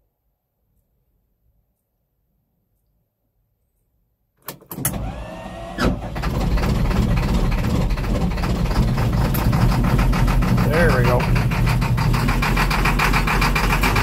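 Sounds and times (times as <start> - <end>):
starter cranking whine: 4.5 - 14.0
diesel engine running: 4.9 - 14.0.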